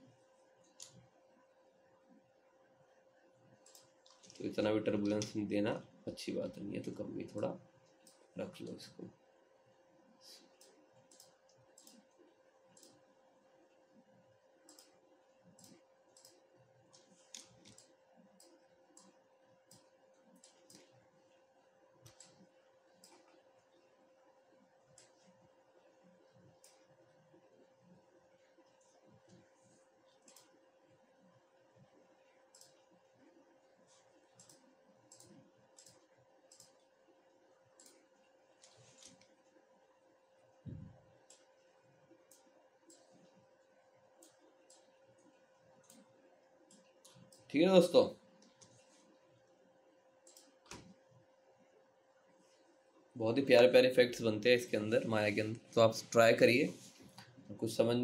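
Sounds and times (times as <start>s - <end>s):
faint steady hum: 0.0s - 58.0s
faint computer mouse clicks: 0.7s - 1.0s, 3.6s - 4.4s, 10.6s - 12.1s, 12.7s - 13.0s, 14.6s - 20.9s, 22.0s - 22.4s, 30.2s - 30.6s, 32.5s - 32.8s, 34.4s - 36.9s, 37.8s - 38.0s, 50.2s - 51.0s
computer mouse clicks: 0.7s - 1.1s, 3.5s - 5.4s, 7.8s - 8.8s, 10.4s - 13.1s, 14.6s - 21.0s, 22.0s - 23.8s, 24.9s - 28.0s, 28.6s - 30.7s, 31.8s - 39.6s, 40.7s - 43.6s, 44.2s - 47.5s, 50.2s - 51.1s.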